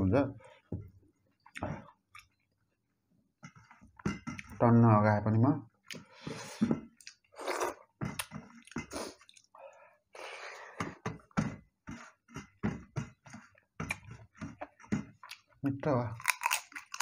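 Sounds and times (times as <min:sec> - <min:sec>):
man chewing with mouth smacks: 0:01.4 - 0:02.5, 0:06.9 - 0:09.6, 0:11.8 - 0:15.6.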